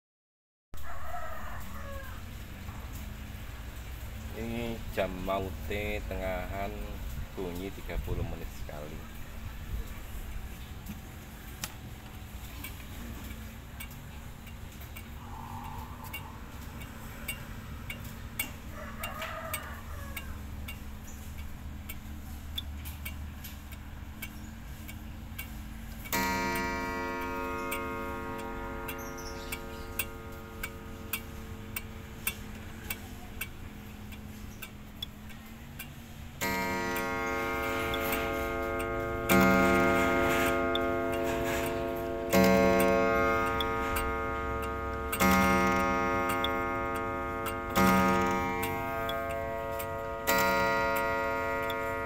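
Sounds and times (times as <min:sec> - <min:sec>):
clock ticking: 0:02.5 - 0:52.0
clock gong ringing: 0:04.3 - 0:09.2, 0:26.1 - 0:34.2, 0:36.4 - 0:52.0.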